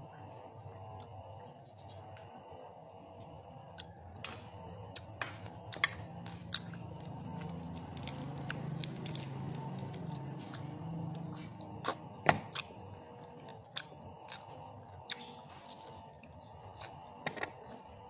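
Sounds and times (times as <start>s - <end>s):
crisp pork skin crackling and crunching: 5.6s - 11.2s.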